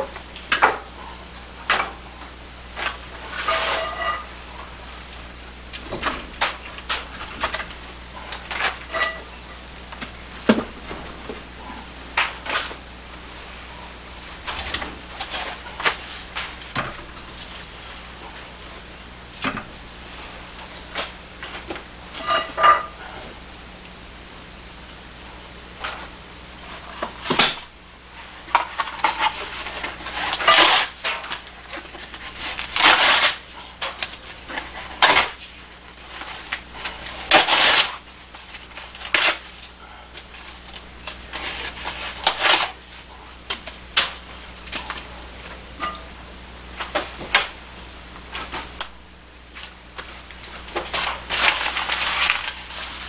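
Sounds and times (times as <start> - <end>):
low steady hum: 0.0 - 53.0
crumpling and rustling: 2.8 - 9.2, 28.2 - 45.1, 49.5 - 53.0.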